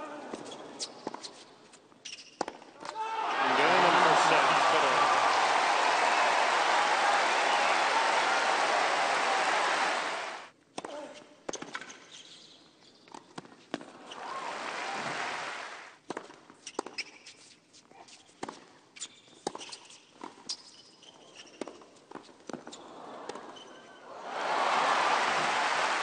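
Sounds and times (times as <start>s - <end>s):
shoe squeaks: 0.3s - 2.5s, 11.8s - 13.1s, 16.6s - 18.4s, 19.0s - 21.8s, 23.5s - 24.0s
crowd applauding: 3.3s - 10.5s, 14.2s - 16.0s, 24.1s - 26.0s.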